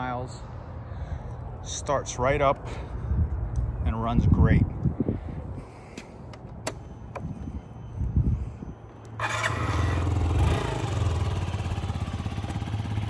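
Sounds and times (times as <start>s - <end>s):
scooter engine starting and idling: 8.6s - 13.0s.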